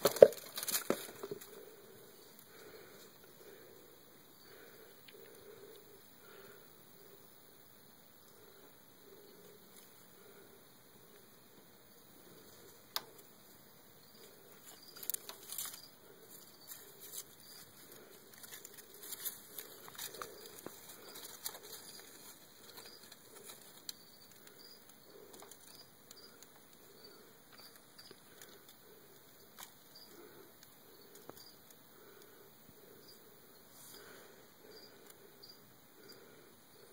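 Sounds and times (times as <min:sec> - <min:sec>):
low steady hiss: 0:00.0 - 0:36.9.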